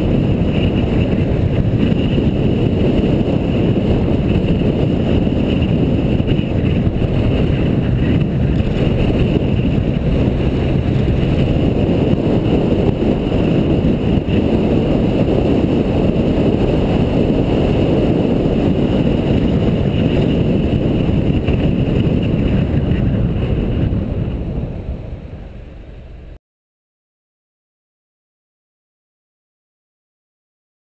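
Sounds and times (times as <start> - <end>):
car engine and tyre noise: 0.0 - 26.4
wind rush on microphone: 0.0 - 26.4.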